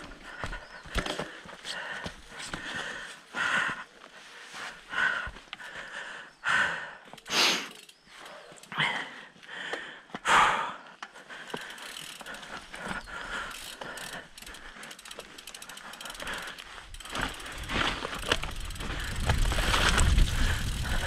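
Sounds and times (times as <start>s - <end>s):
bike frame rattling: 11.4s - 21.0s
freewheel hub clicking: 11.5s - 21.0s.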